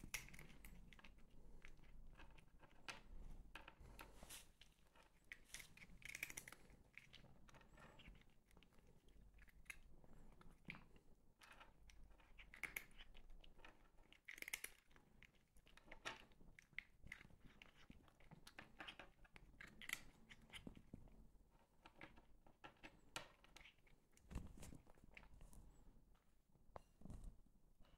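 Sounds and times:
cat crunching treats: 5.3 - 7.2.

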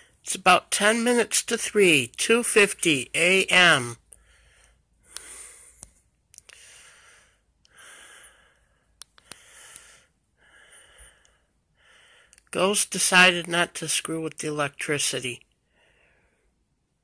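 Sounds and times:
faint breathing: 4.1 - 12.5, 15.6 - 16.7
small clicks: 9.0 - 9.9.

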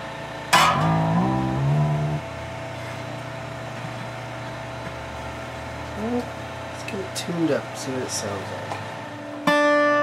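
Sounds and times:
low background hum: 0.0 - 9.8
hand damping guitar strings: 0.5 - 2.3
guitar strings ringing: 0.5 - 2.5, 9.3 - 10.0.

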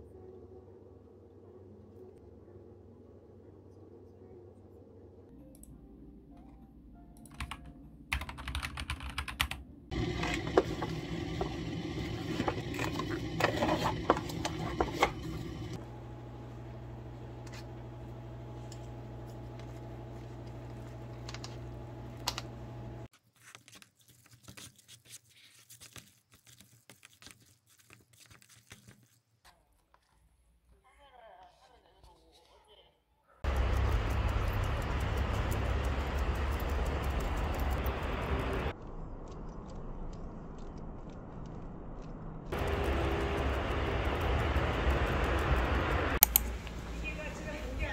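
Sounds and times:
computer keyboard typing: 7.2 - 9.6, 33.4 - 38.7
steady low hum: 9.9 - 23.1, 33.4 - 47.9
noisy background: 33.5 - 47.9.

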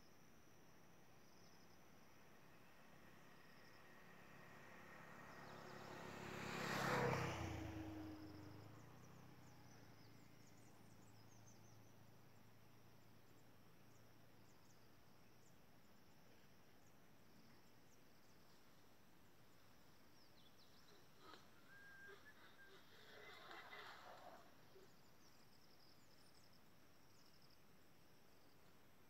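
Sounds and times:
insects: 0.0 - 29.0
vehicle passing: 2.9 - 9.8
faint bird chirps: 20.1 - 27.6.

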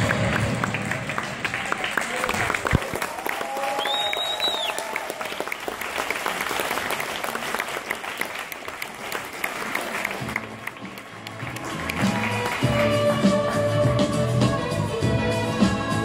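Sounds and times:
audience clapping: 0.0 - 14.1.

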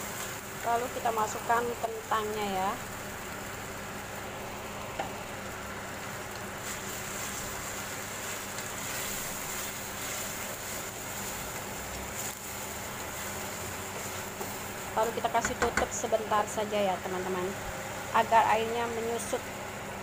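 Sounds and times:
food sizzling in a pan: 0.0 - 20.0
wooden spatula stirring: 6.6 - 16.0.

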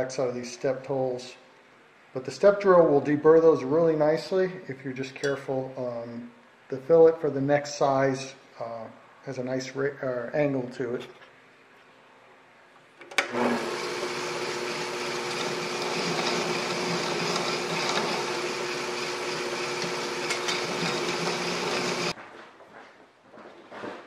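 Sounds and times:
drill press motor whirring: 13.1 - 22.1.

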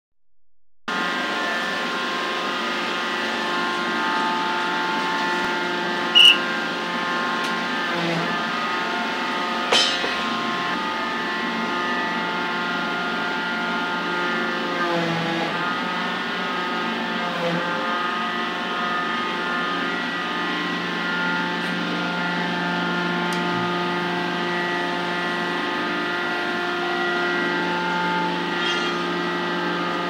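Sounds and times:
machinery humming: 0.9 - 30.0
sharp metallic ring: 9.7 - 10.3, 28.6 - 29.4.

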